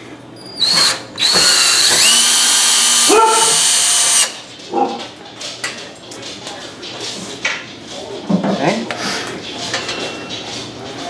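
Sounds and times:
cordless drill whining: 0.6 - 4.4.

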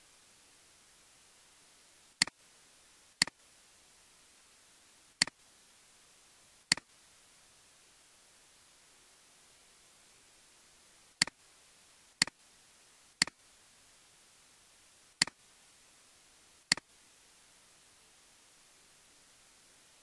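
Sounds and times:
faint steady hiss: 0.0 - 20.0
computer mouse clicks: 16.7 - 16.9.

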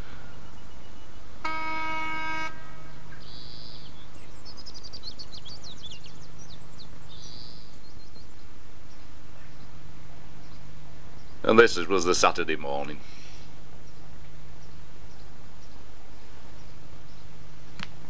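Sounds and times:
birds chirping: 0.0 - 17.9
locomotive whistle toot: 1.5 - 2.8.

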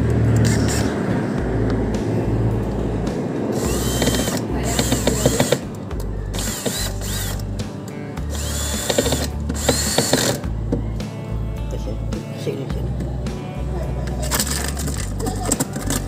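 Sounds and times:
cordless drill whining: 3.5 - 5.7, 6.3 - 7.5, 8.3 - 10.4.

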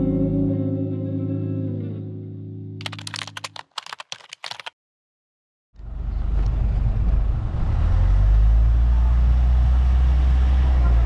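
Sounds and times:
typing key clicks: 2.8 - 4.7.

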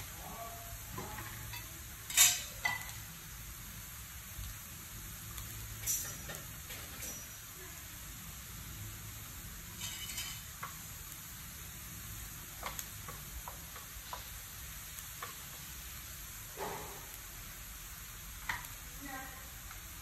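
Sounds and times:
hot oil sizzling: 0.0 - 20.0
metal spatula scraping a wok: 0.4 - 3.0, 5.8 - 7.4, 9.7 - 10.6.

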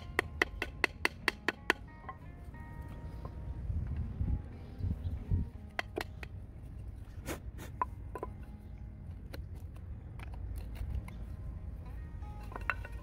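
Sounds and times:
steady low rumble: 2.3 - 7.2.

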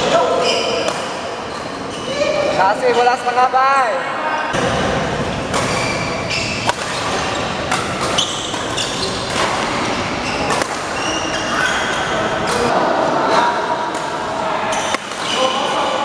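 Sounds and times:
shoes squeaking on court: 0.3 - 2.6, 5.2 - 12.7, 14.7 - 15.9
rackets hitting shuttlecock: 4.6 - 11.3, 13.9 - 15.8.

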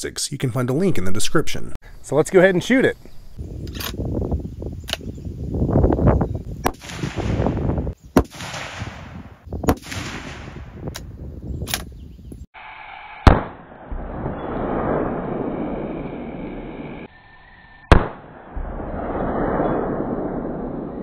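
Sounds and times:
rifle shots echoing: 6.7 - 10.8, 13.2 - 16.7, 17.9 - 21.0.

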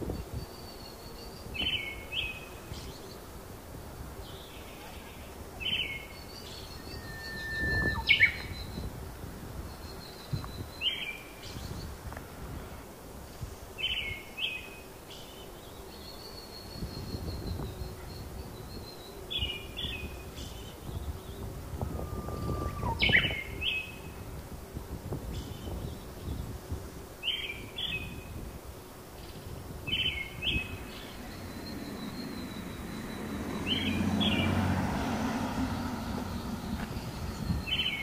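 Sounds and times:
songbird falling call: 4.6 - 8.9, 19.4 - 24.0, 29.9 - 34.6, 35.4 - 38.0
high bird whistles: 6.6 - 8.7, 21.8 - 23.6
low outdoor rumble: 30.6 - 38.0.

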